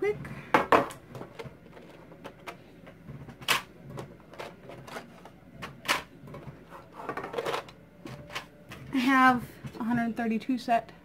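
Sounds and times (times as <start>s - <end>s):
pencils clicking and rattling: 3.3s - 8.5s.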